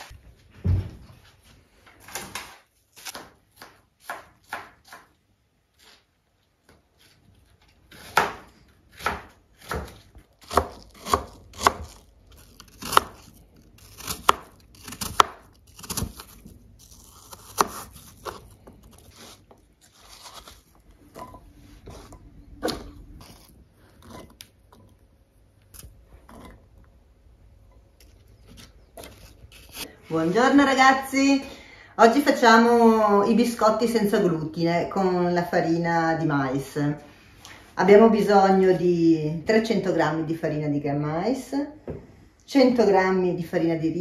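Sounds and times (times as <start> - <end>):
knife chopping on cutting board: 3.0 - 5.1, 7.9 - 12.0, 12.6 - 16.4.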